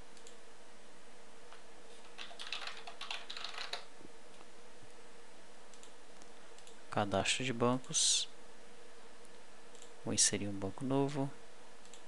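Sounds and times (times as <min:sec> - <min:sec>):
computer keyboard typing: 0:02.0 - 0:03.9.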